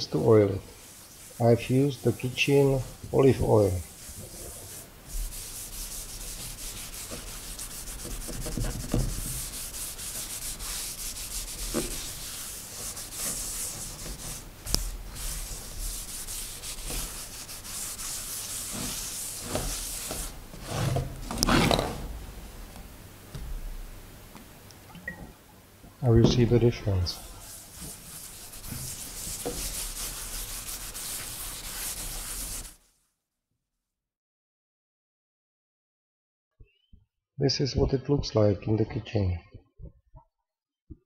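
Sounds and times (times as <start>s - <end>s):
cloth wiping over wood: 0.0s - 21.7s, 26.2s - 32.8s.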